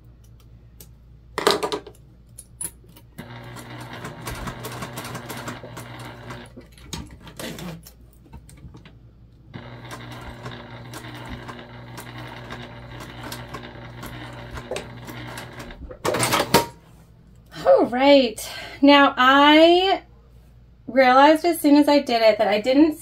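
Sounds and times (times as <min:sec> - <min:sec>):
sewing machine running: 0:03.2 - 0:07.8, 0:09.6 - 0:16.6.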